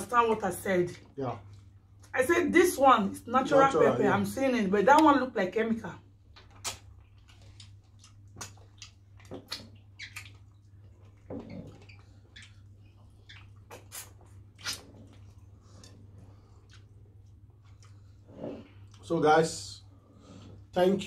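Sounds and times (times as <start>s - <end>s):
low steady hum: 0.0s - 21.0s
chewing: 6.2s - 19.1s
mouth smacking: 6.4s - 15.4s.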